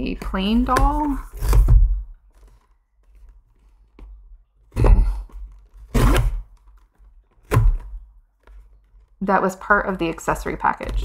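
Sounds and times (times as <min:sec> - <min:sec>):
box thunks: 0:00.3 - 0:02.6, 0:04.7 - 0:06.8, 0:07.4 - 0:08.1
packaging rustling: 0:00.5 - 0:04.7, 0:05.4 - 0:09.2.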